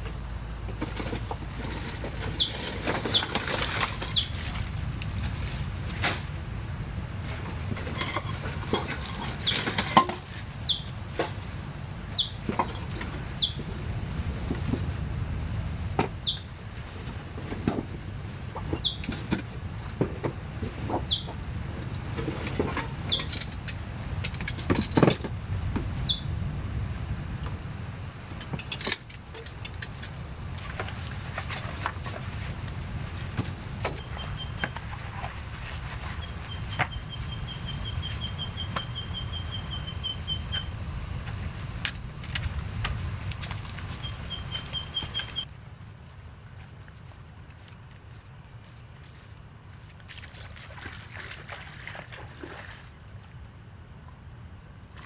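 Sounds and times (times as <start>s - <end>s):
insects droning: 0.0s - 55.0s
pulsing call: 27.0s - 45.4s.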